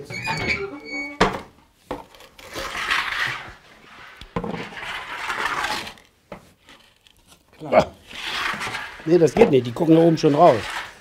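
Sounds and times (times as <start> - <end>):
bread peel scraping on stone: 2.2 - 6.1, 8.0 - 11.0.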